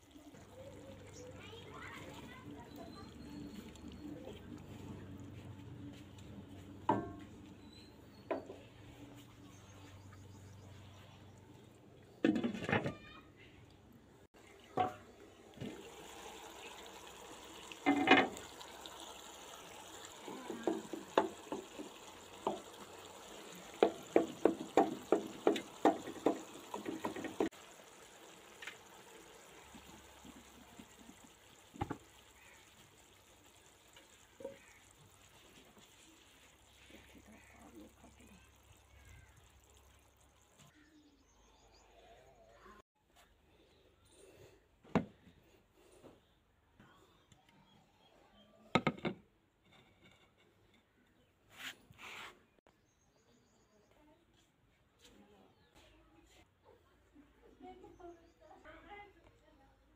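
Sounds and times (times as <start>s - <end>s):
sauce bubbling: 14.5s - 40.7s
wooden spoon tapping a wok: 20.4s - 22.8s, 23.7s - 27.5s.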